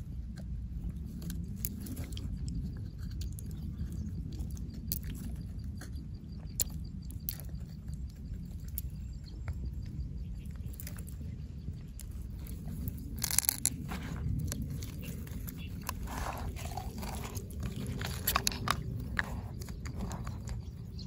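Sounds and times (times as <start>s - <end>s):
low rumble: 0.0s - 21.0s
wet flesh squelching: 12.8s - 19.8s.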